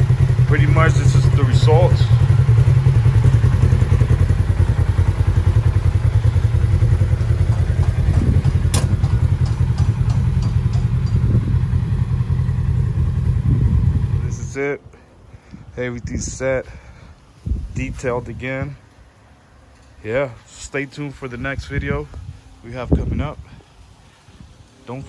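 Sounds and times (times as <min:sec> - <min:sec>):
engine idling: 0:00.0 - 0:15.2.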